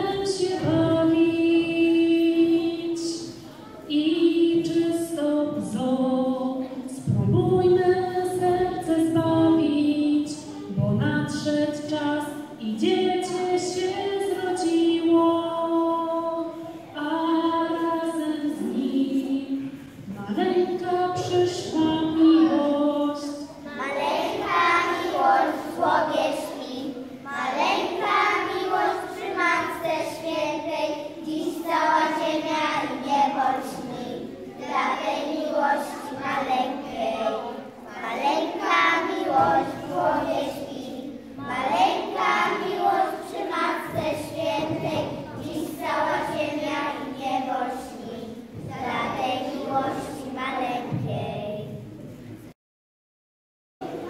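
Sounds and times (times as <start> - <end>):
woman singing through microphone: 0.0 - 3.3, 3.9 - 23.5
children singing: 12.6 - 51.4.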